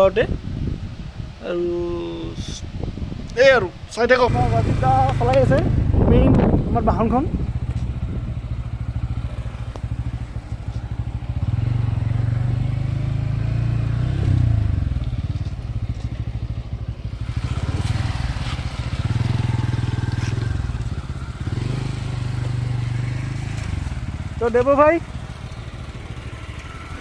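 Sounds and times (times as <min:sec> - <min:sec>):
motorcycle engine running: 0:04.2 - 0:27.0.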